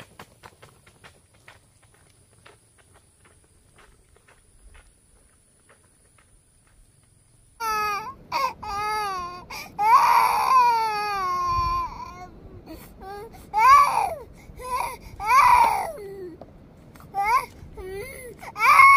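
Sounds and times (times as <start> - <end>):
small child crying: 7.6 - 16.4, 17.0 - 18.9.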